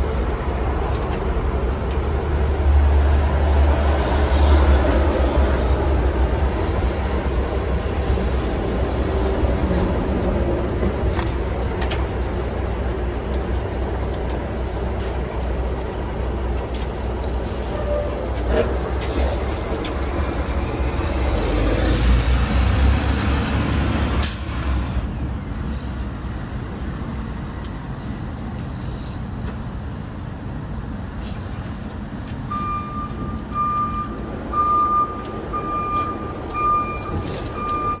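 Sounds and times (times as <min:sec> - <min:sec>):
heavy vehicle rumbling: 0:00.0 - 0:38.0
truck reversing alarm beeping: 0:00.1 - 0:13.8, 0:32.4 - 0:38.0.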